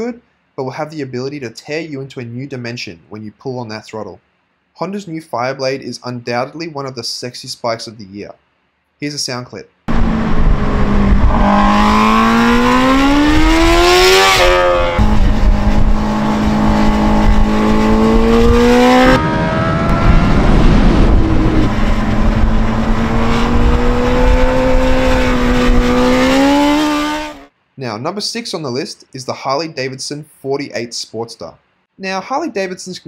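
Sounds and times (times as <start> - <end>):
motorcycle engine accelerating hard: 9.9 - 27.5.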